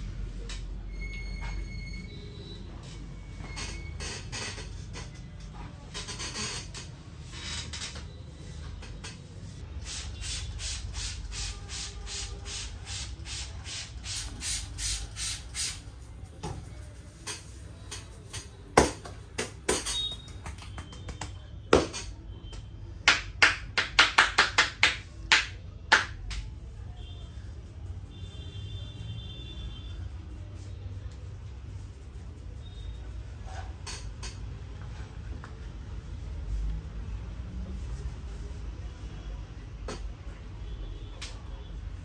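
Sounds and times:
hands slapping head: 18.8s - 21.4s.

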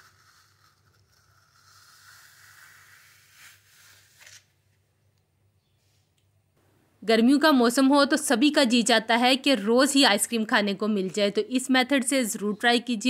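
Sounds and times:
ice cream scoop scraping: 0.0s - 4.1s.

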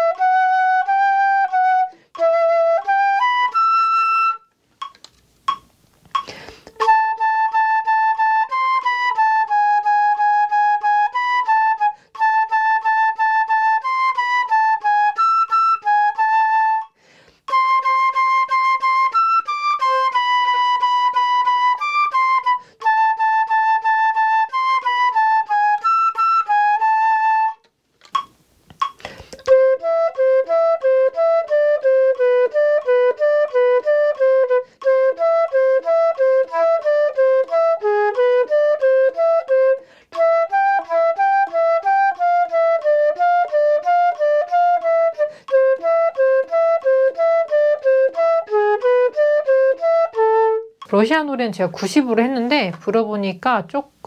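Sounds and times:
solo flute melody: 0.0s - 5.6s, 6.2s - 51.0s
clicks: 4.8s - 6.9s, 27.6s - 29.6s.

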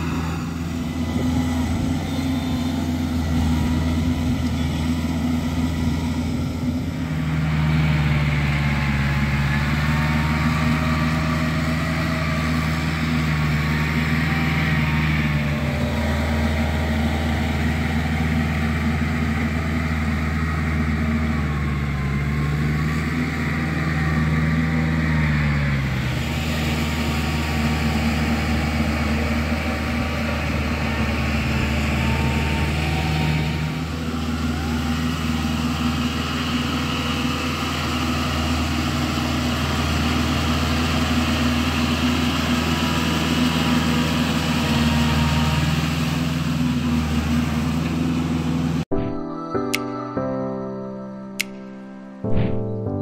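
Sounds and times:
tractor diesel engine running: 0.0s - 49.0s.

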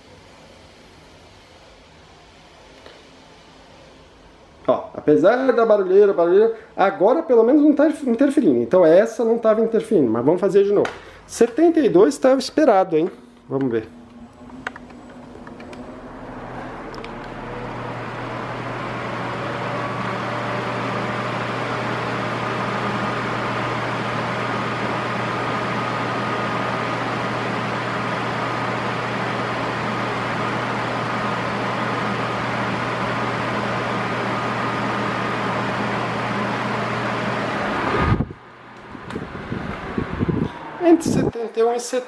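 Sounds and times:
electric fan whirring: 0.0s - 41.9s.

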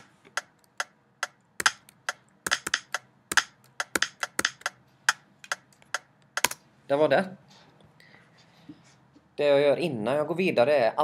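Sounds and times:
keyboard keys clicking: 0.0s - 6.6s.

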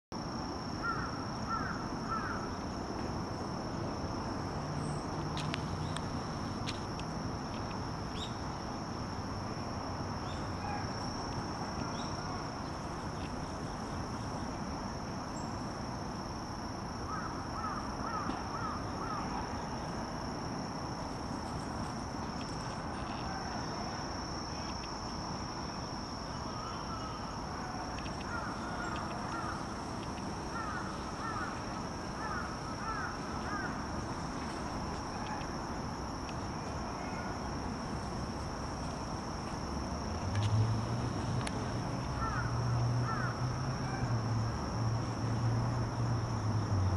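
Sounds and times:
outdoor background noise: 0.1s - 46.9s
high-pitched insect drone: 21.2s - 45.1s.

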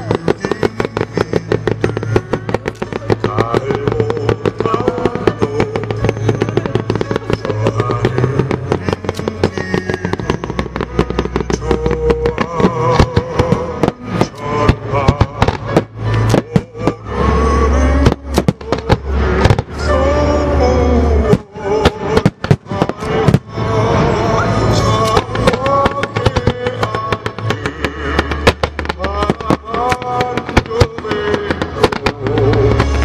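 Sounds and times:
heavy firework booms: 0.0s - 33.0s
music: 0.0s - 33.0s
firework shells bursting: 24.9s - 33.0s.

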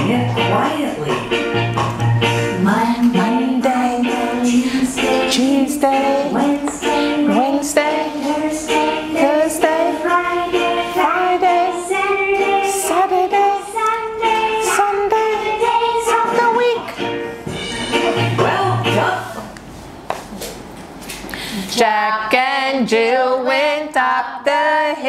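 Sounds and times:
children's song with instrumental backing: 0.0s - 19.5s.

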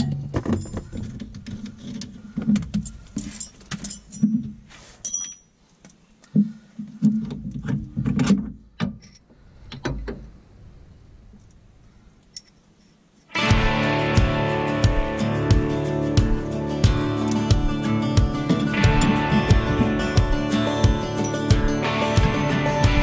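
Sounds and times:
hand tools and metal parts clinking: 0.0s - 6.0s, 12.2s - 13.3s, 18.4s - 22.8s.

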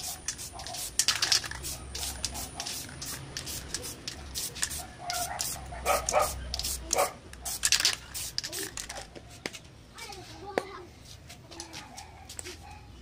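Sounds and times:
spray paint can hissing: 0.0s - 9.0s.

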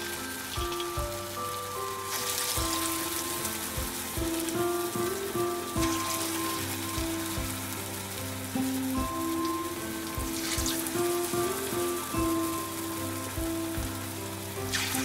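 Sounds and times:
fritters sizzling in oil: 0.0s - 15.0s
soft background melody: 0.0s - 15.0s.

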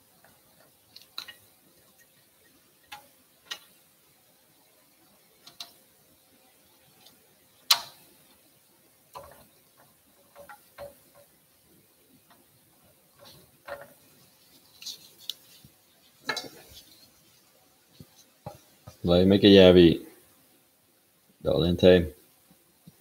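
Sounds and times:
faint steady hum: 0.0s - 23.0s
tongs clicking on wire rack: 7.7s - 8.0s.

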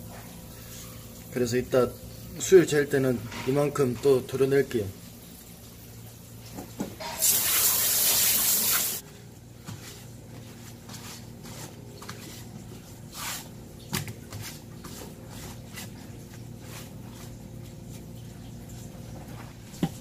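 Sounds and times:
tap water rushing: 5.1s - 9.0s, 18.7s - 20.0s
paper towel rubbing wet skin: 9.8s - 13.6s, 14.2s - 19.2s.

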